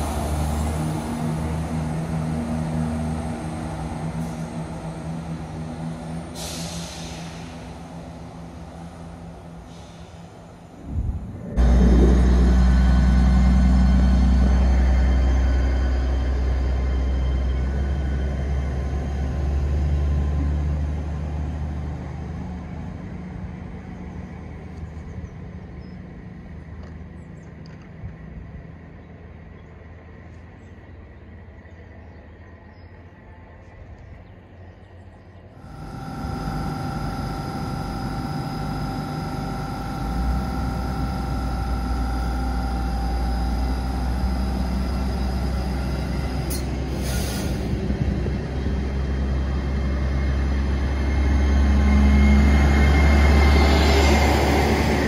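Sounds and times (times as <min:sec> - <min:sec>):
train electrical whine: 0:00.0 - 0:21.4, 0:35.4 - 0:55.0
diesel engines rumbling: 0:00.0 - 0:55.0
short hiss: 0:06.4 - 0:07.7.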